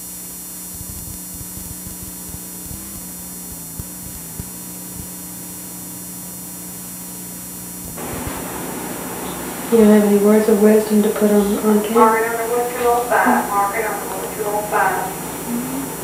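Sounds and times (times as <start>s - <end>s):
tape hum and hiss: 0.0s - 16.0s.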